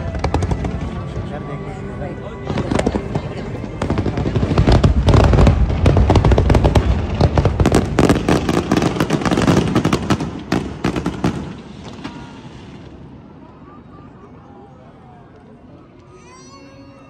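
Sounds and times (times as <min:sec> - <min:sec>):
fireworks cracking and booming: 0:00.0 - 0:01.7, 0:02.4 - 0:13.2.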